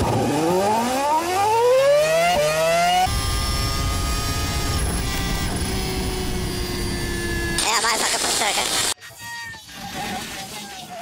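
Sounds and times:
race car engine accelerating: 0.0 - 7.6.

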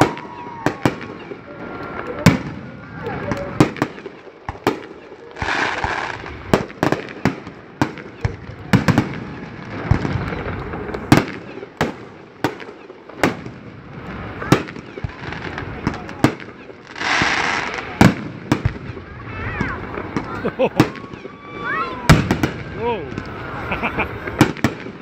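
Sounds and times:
fireworks bursting: 0.0 - 25.0
firework hiss: 5.4 - 7.3, 13.2 - 25.0.

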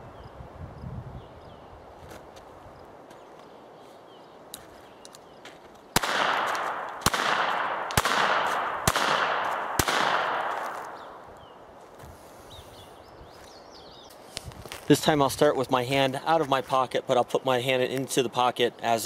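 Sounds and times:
revolver gunshots with echo: 6.0 - 11.2.

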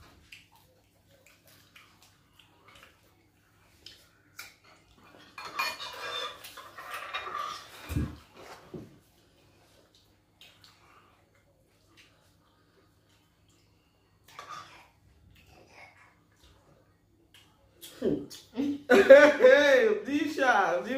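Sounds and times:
cutlery and dishes clinking: 4.5 - 8.1.

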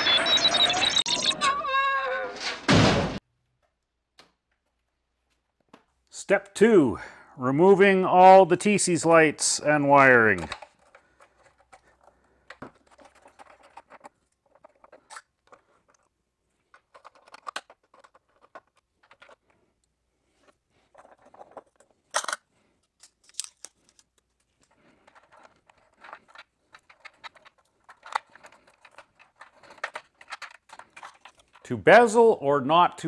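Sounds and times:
rustling: 10.2 - 31.7.

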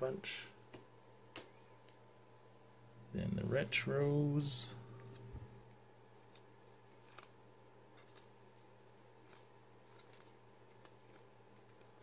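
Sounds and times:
low steady hum: 0.0 - 12.0
cards ticking while shuffled: 6.2 - 12.0.

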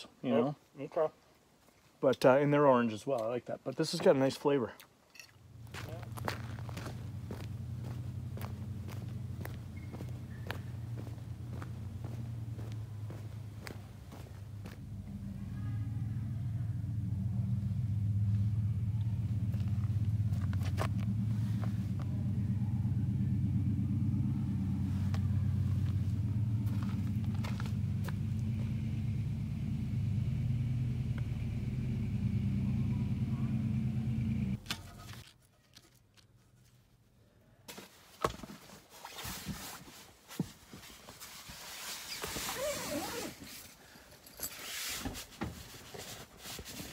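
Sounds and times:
car engine idling: 5.4 - 35.2.

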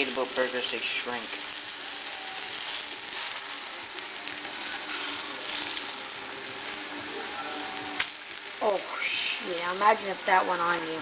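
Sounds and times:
patties sizzling in oil: 0.0 - 11.0.

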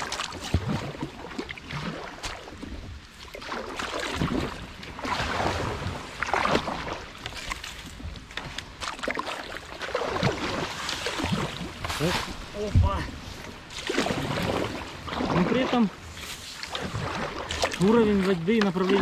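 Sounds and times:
kayak paddle swishing through water: 0.0 - 19.0
reeds brushing past boat: 10.0 - 17.8.

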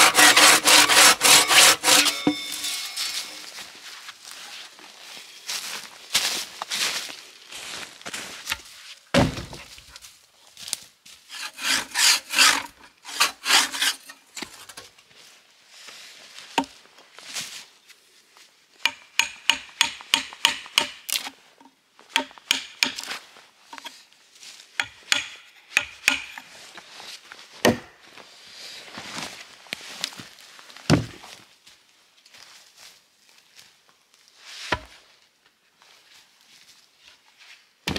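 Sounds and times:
rasping strokes on wood: 0.0 - 2.7, 11.3 - 14.1.

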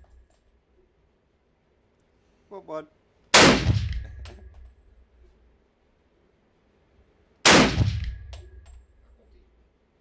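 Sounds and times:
rifle shot with echo: 3.3 - 4.4, 7.4 - 8.6.

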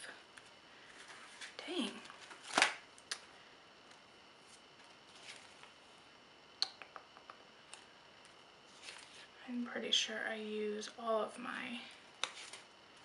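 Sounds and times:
paper pages rustling: 0.4 - 2.8, 3.9 - 5.8, 8.7 - 9.3, 12.2 - 12.7
faint book clicks: 12.2 - 12.6.

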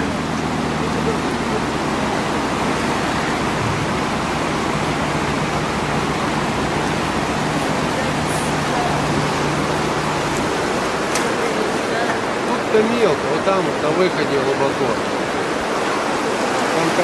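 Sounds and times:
vehicle engine running: 0.0 - 11.8
river water rushing: 0.0 - 17.0.

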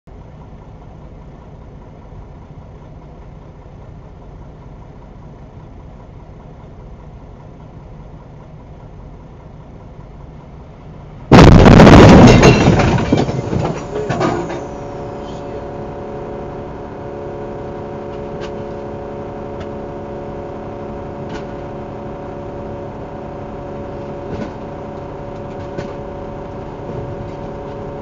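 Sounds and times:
truck crashing into truck: 11.3 - 16.0.

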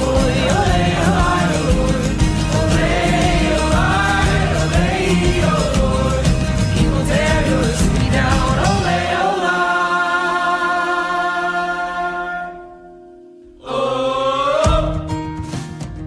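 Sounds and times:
drums: 0.0 - 9.6, 14.6 - 16.0
person singing with vibrato: 0.0 - 15.1
instrumental music: 0.0 - 16.0.

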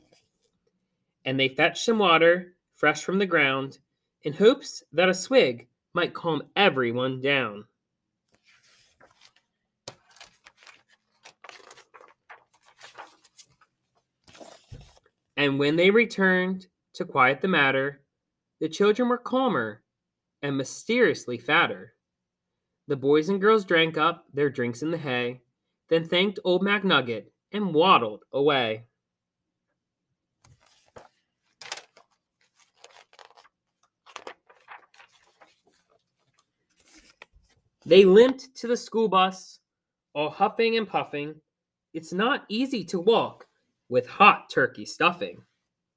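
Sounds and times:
paper rustling: 8.3 - 15.2, 30.4 - 37.9.

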